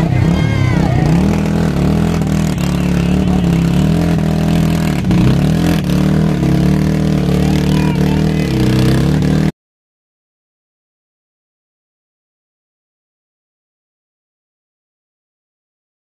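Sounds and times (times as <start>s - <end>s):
atv engine revving: 0.0s - 9.5s.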